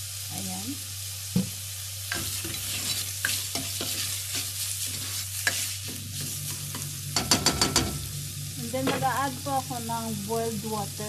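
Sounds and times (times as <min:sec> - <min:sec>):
onion and rice sizzling in oil: 0:00.0 - 0:11.0
spatula stirring and scraping: 0:02.1 - 0:07.9.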